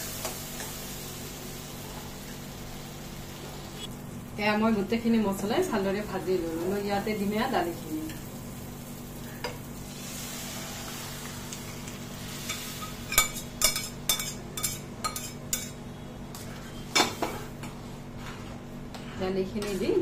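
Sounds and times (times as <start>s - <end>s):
lentils sizzling in hot pan: 0.0s - 15.7s
spoon stirring and knocking pan: 12.8s - 15.8s.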